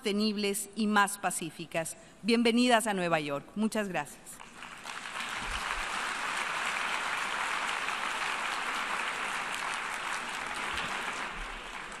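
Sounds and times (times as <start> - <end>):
audience applauding: 4.4 - 12.0.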